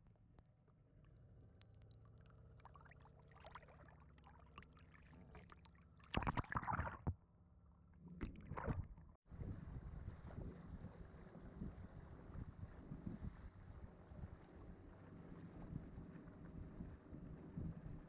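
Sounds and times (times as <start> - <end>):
river water gurgling and sloshing: 2.1 - 7.1.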